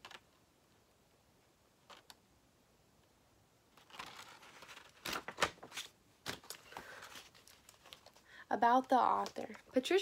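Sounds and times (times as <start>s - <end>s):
paper rustling as pages turn: 3.7s - 8.2s.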